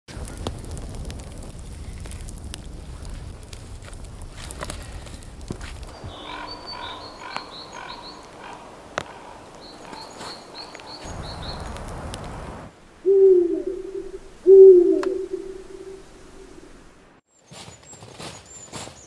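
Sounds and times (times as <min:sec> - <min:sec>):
bird singing high notes: 0:05.9 - 0:08.3
low hooting calls: 0:05.9 - 0:17.1.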